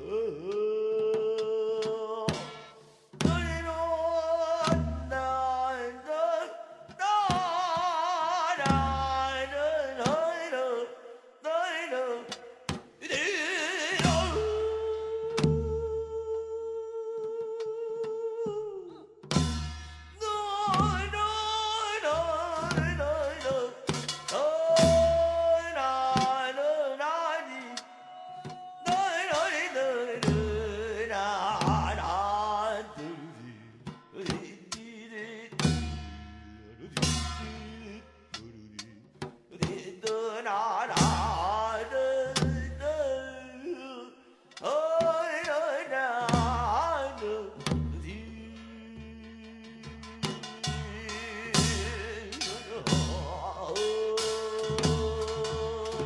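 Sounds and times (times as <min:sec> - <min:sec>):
sharp percussion strikes: 0:19.3 - 0:26.4, 0:35.6 - 0:38.5, 0:49.6 - 0:56.0.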